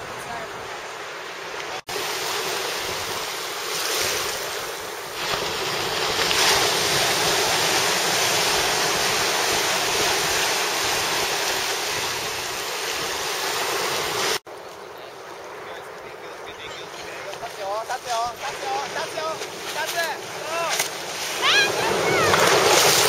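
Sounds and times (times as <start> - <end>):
small waves washing in shallows: 0.0 - 14.4, 15.1 - 23.0.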